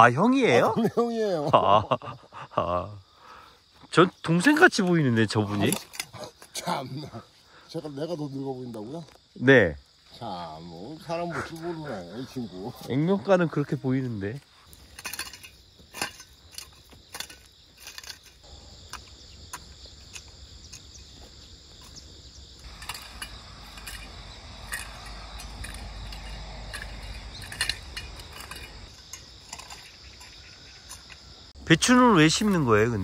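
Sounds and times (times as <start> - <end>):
insects chirring: 0.0 - 33.0
hoe scraping stony soil: 14.4 - 33.0
low rumble: 22.7 - 28.8.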